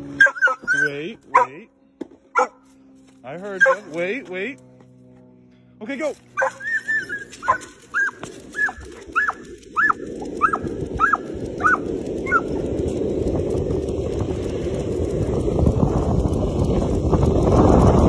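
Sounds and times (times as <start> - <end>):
dog yelping whines: 0.1 - 1.6, 2.4 - 2.6, 3.6 - 4.0, 6.4 - 12.5
running footsteps: 0.2 - 5.5, 6.1 - 18.0
wind noise on microphone: 6.9 - 18.0.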